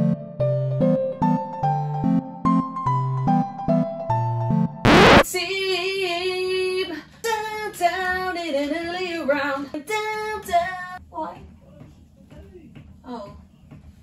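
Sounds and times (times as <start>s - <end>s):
loud burst of noise: 4.9s - 5.2s
woman singing: 5.3s - 11.0s.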